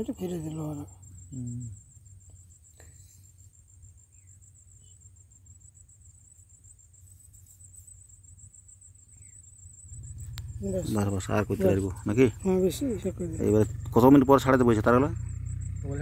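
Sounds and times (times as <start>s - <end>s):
high-pitched cricket trill: 0.0s - 16.0s
low rumble: 9.7s - 16.0s.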